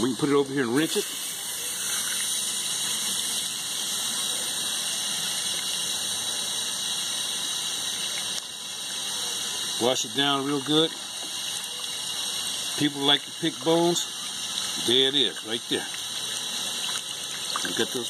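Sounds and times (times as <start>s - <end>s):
tap water running: 0.0s - 18.0s
water splashing over fish: 15.9s - 18.0s.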